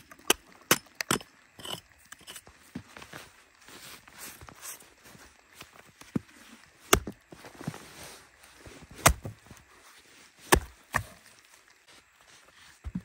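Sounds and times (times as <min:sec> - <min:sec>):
axe chopping log: 0:06.9 - 0:07.2, 0:09.0 - 0:09.4, 0:10.5 - 0:11.2.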